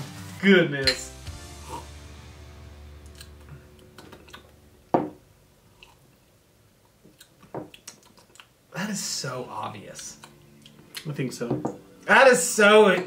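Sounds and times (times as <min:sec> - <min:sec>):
glass knocked down on wood: 0:04.9 - 0:05.2.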